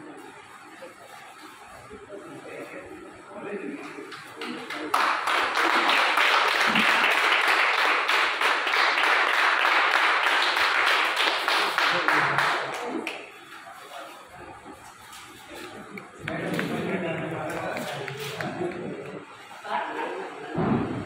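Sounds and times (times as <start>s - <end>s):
crowd applauding: 4.3s - 13.5s, 15.6s - 19.5s.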